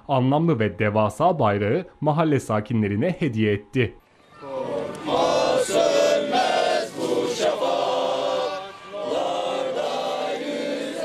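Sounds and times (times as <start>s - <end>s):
men singing in unison: 4.6s - 11.0s.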